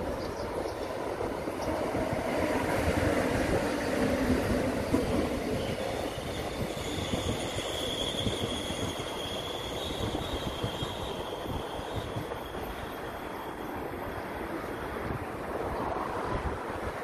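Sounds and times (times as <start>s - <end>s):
train wheels rumbling on rail: 0.0s - 17.0s
high wheel squeal: 5.6s - 14.9s.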